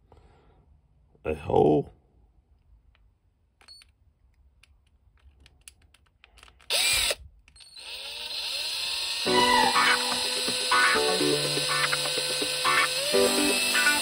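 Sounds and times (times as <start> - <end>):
power drill drilling into plastic: 6.7 - 14.0.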